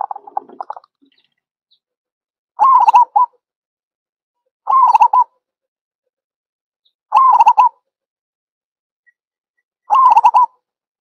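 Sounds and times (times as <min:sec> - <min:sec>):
dove cooing: 0:00.0 - 0:00.9, 0:02.6 - 0:03.3, 0:04.7 - 0:05.3, 0:07.2 - 0:07.7, 0:09.9 - 0:10.5.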